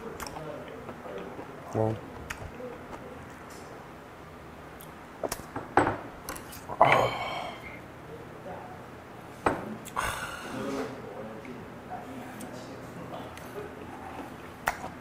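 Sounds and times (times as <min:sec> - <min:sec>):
eating noise: 0:00.0 - 0:03.4.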